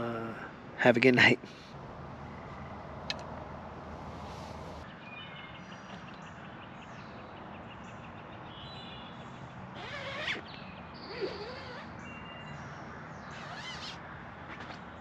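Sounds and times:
birds chirping and trilling: 1.4 - 15.0
bird sliding calls: 9.8 - 10.4, 13.3 - 14.8.

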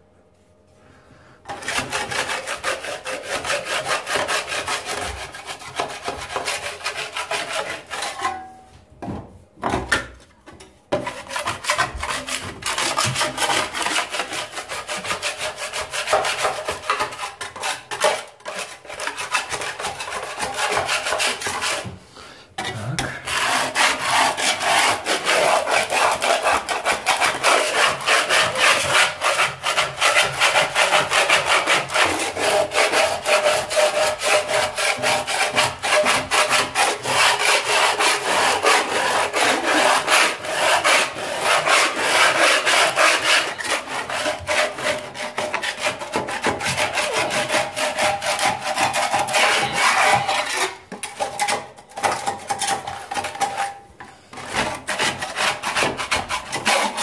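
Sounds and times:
putty knife scraping wall: 1.4 - 57.0.

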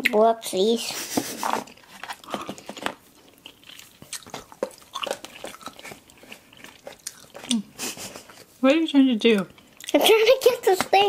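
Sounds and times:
chewing and crunching candy: 1.6 - 8.4, 9.3 - 10.8.

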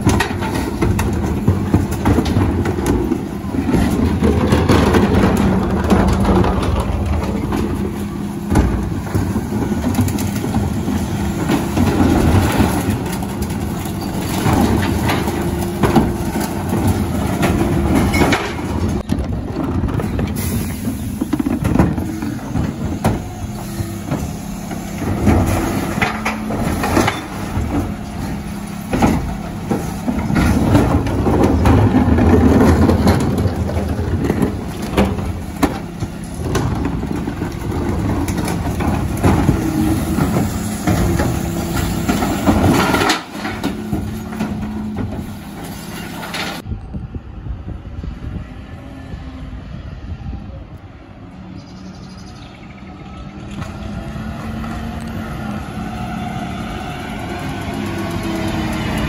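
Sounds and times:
recycling clattering: 0.0 - 46.7
engine and hydraulic drone: 0.0 - 59.0.

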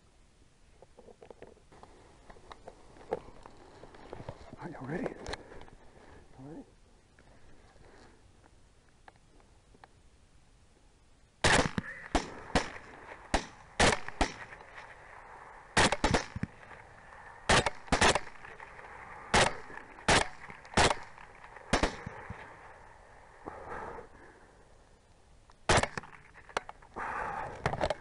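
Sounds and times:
rifle shots: 11.4 - 14.8, 15.7 - 16.8, 17.4 - 22.5, 25.7 - 26.4.

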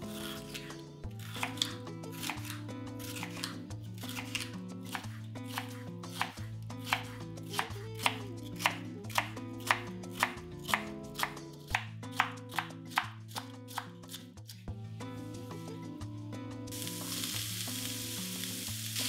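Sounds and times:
knife slicing peppers: 0.0 - 14.6.

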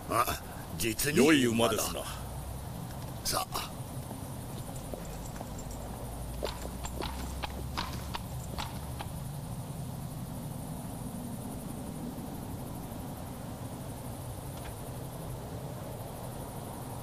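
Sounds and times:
horse hooves clopping on stone: 4.0 - 9.2.

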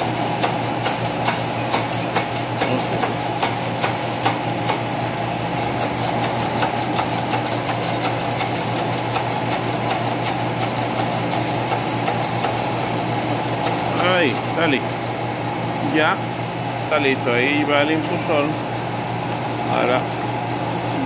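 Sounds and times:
machine motor humming: 0.0 - 21.0.

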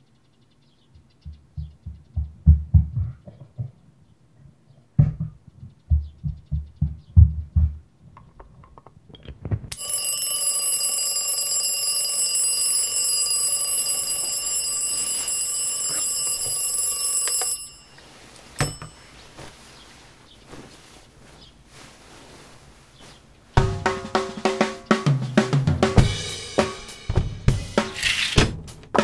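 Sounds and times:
low thumps: 1.0 - 3.8, 5.0 - 8.0, 23.6 - 24.2
knock: 1.3 - 3.7, 5.0 - 7.8
bell alarm clock ringing: 9.8 - 19.1.

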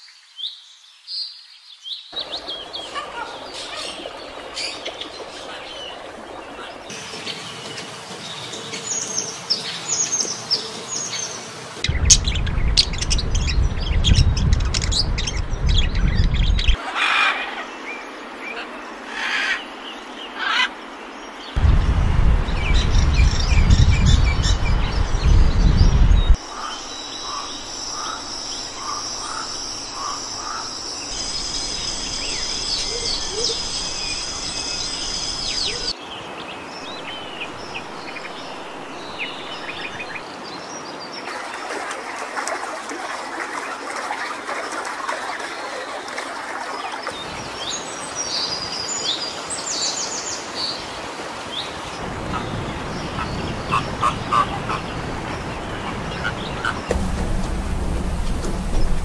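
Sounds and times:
birds chirping and calling: 2.2 - 21.7, 22.5 - 36.0, 52.1 - 59.0
low rumbling noise: 11.9 - 16.8, 21.6 - 26.4, 56.9 - 59.0.

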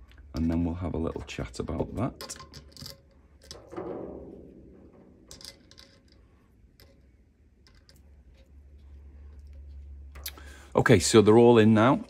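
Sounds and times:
ringing metal knock: 3.6 - 5.4.

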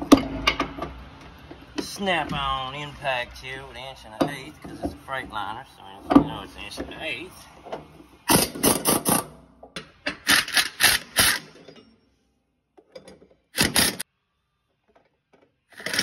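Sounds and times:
impact wrench hammering bolt: 8.3 - 11.6, 13.6 - 14.0.

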